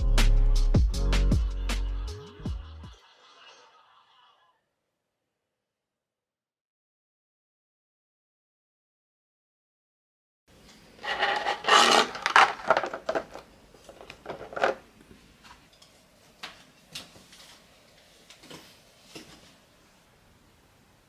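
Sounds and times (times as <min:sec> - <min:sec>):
plastic keyboard rattling and knocking: 0:11.0 - 0:14.8.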